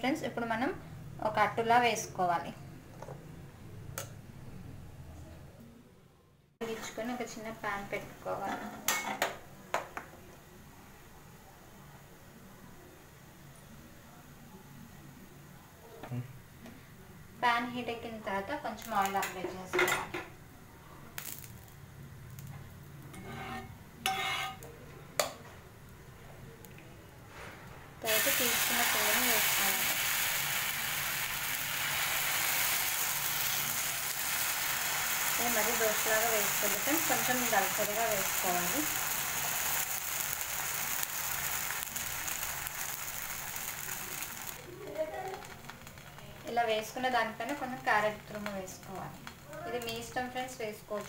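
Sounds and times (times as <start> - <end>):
batter sizzling in a pan: 21.1 - 23.1, 28.0 - 51.0
spatula scraping on a griddle: 23.1 - 24.6.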